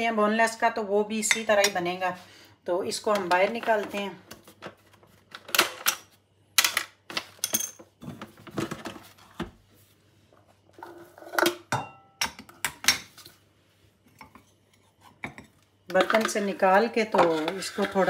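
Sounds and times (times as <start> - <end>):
metal spoon scraping plastic bowl: 15.9 - 18.0.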